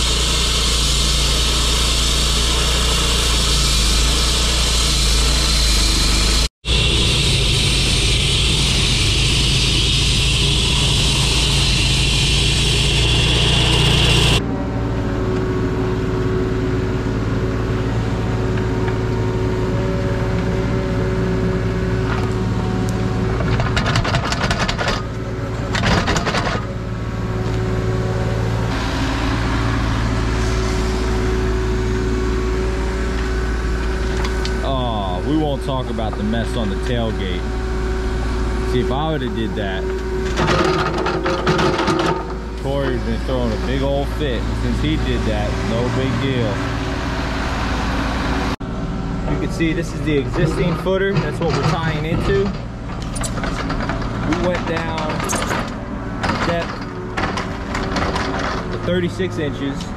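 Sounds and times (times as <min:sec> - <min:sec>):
hissing cutting noise: 0:00.0 - 0:14.4
saw engine running: 0:00.0 - 0:14.8, 0:27.5 - 0:59.9
excavator engine running: 0:00.0 - 0:59.9.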